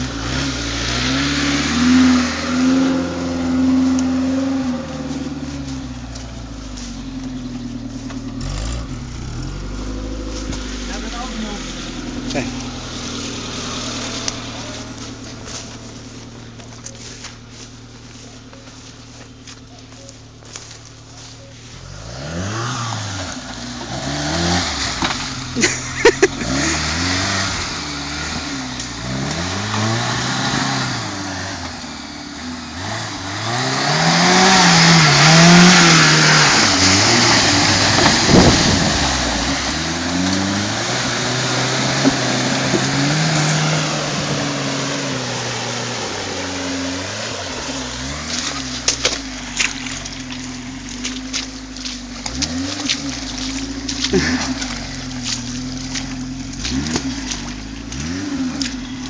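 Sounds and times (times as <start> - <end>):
engine revving: 0.0 - 59.0
splashing through mud and water: 0.0 - 59.0
mud clicks spraying: 47.1 - 59.0.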